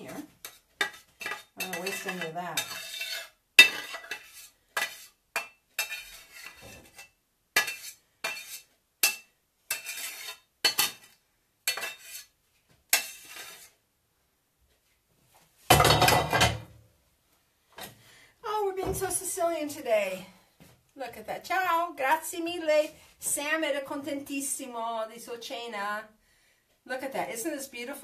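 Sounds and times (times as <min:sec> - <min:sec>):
utensil scraping metal pan: 0:00.0 - 0:13.8.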